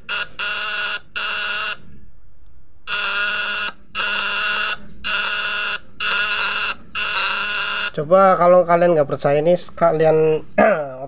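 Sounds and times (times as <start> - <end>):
contact breaker buzzing: 0.0 - 1.8, 2.9 - 8.0.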